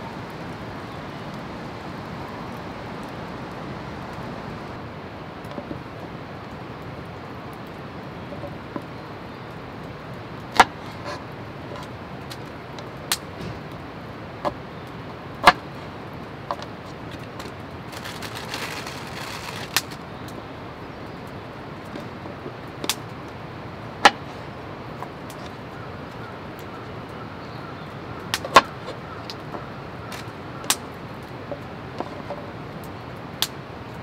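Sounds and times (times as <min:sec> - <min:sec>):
steady background hiss: 0:00.0 - 0:34.0
rustling: 0:16.5 - 0:20.1.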